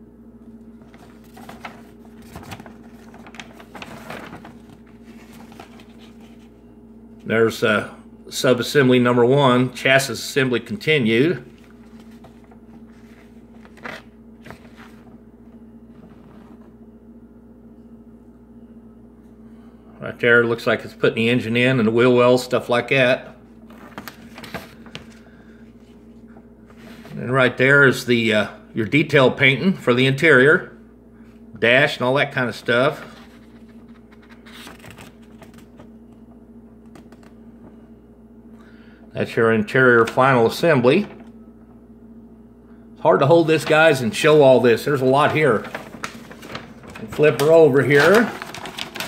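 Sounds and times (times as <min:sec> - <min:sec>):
low electrical hum: 0:00.0 - 0:49.0
paper rustling: 0:00.6 - 0:07.3, 0:11.4 - 0:16.7, 0:23.7 - 0:27.2, 0:32.9 - 0:36.0, 0:36.8 - 0:37.8, 0:40.9 - 0:41.4, 0:43.5 - 0:49.0.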